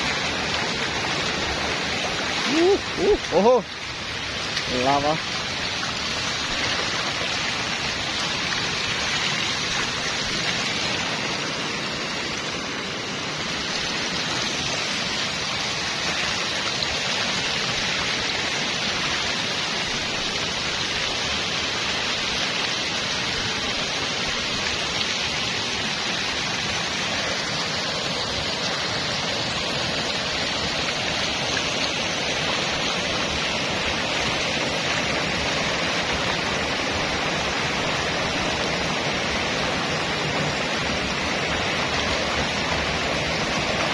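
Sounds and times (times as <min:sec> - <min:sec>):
water hissing: 0:00.0 - 0:12.2.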